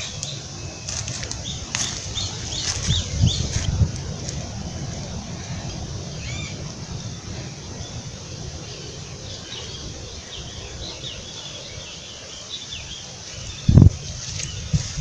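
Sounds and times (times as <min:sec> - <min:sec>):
low rumble: 0:00.0 - 0:11.8
small birds chirping: 0:00.0 - 0:15.0.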